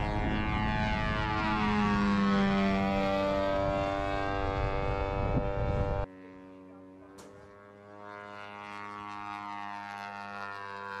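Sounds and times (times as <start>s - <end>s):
wind rumble: 0.0s - 6.1s
propeller engine buzzing: 0.0s - 11.0s.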